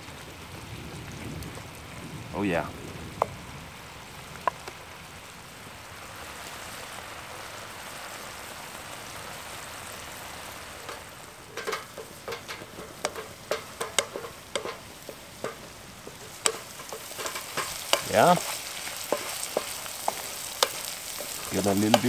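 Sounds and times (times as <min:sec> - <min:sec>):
sauce bubbling and sizzling: 0:00.0 - 0:22.0
wooden spatula scraping a pan: 0:10.8 - 0:22.0.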